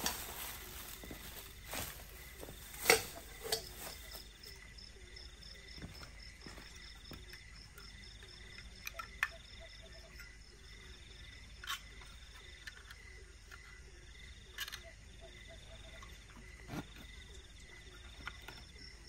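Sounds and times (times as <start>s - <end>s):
camping gear knocks and clicks: 0.0s - 4.5s, 5.8s - 9.4s
night insects chirping: 0.0s - 19.0s.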